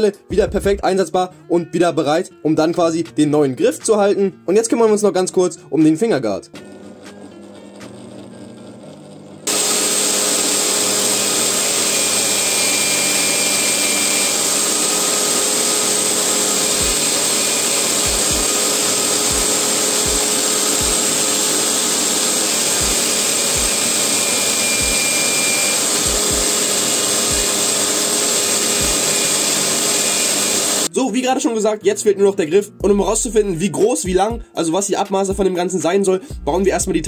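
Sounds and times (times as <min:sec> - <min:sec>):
electric drill running: 0:06.6 - 0:30.9
metal polished on buffing wheel: 0:09.5 - 0:30.9.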